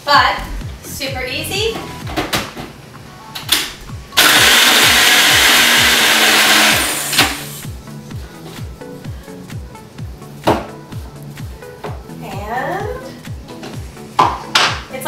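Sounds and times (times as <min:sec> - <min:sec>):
blender running: 0:04.2 - 0:07.6.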